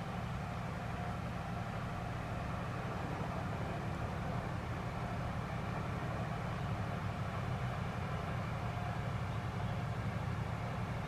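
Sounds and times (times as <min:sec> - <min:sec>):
vehicle engine rumbling: 0:00.0 - 0:11.0.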